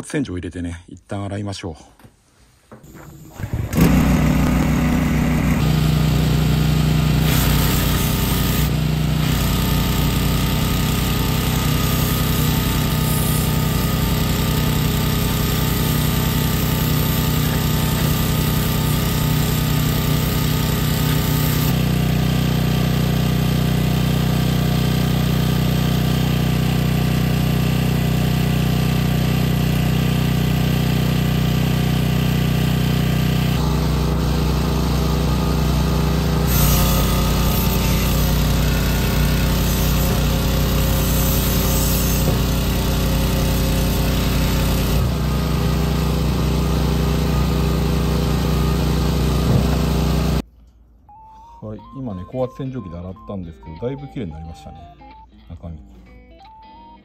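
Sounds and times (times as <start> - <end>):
recoil starter pull: 2.9 - 22.3, 33.6 - 46.2
small gasoline engine running: 3.1 - 50.4
high-pressure water jet hiss: 36.5 - 38.4, 39.1 - 42.4.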